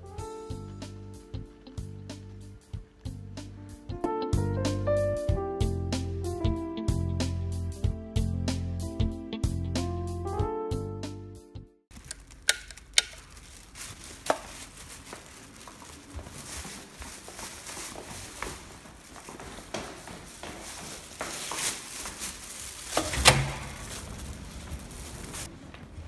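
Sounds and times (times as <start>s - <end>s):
footsteps: 11.9s - 26.0s.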